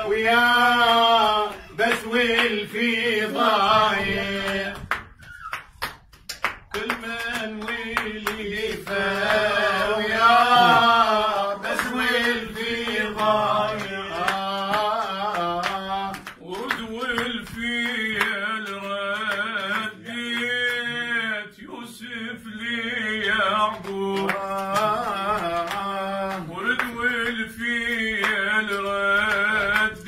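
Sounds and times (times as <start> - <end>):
hand claps: 0.0 - 30.0
man singing melismatic phrases: 10.2 - 11.3.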